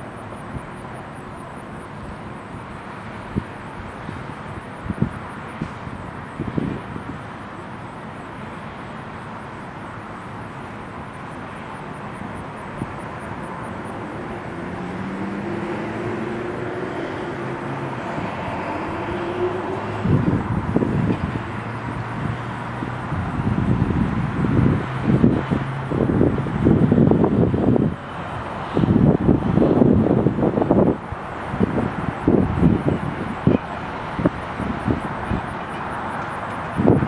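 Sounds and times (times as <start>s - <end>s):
engine drone: 0.0s - 37.0s
wind buffeting microphone: 4.5s - 7.3s, 13.8s - 37.0s.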